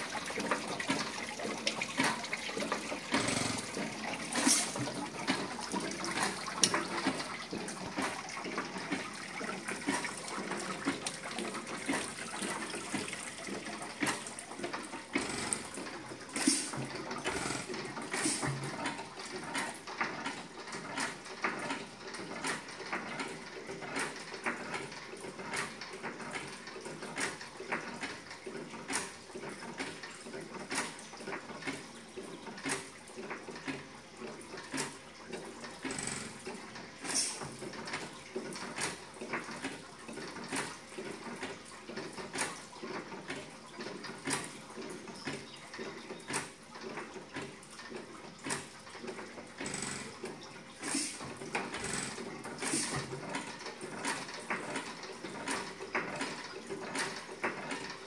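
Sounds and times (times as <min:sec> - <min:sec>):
water trickling: 0:00.0 - 0:17.2
mechanical clicks clattering: 0:45.2 - 0:58.0.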